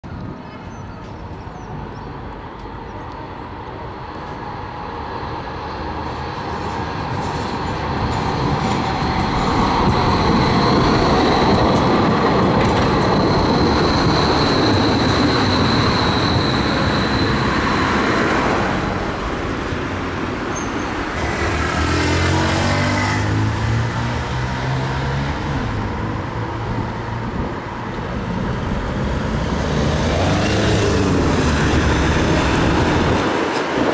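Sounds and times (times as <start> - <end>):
road traffic: 0.0 - 33.9
tram rolling noise: 0.0 - 33.9.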